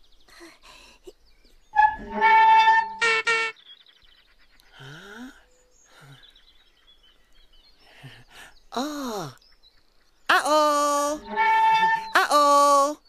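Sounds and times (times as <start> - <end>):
faint birdsong: 0.0 - 13.0
wordless vocal calls: 7.9 - 9.4, 10.3 - 13.0.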